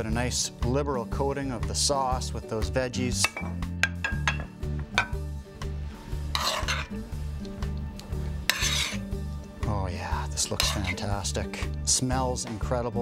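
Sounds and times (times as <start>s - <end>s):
background music bass line: 0.0s - 13.0s
metal spoon scraping a pan: 6.1s - 7.1s, 8.4s - 9.2s, 10.4s - 11.3s.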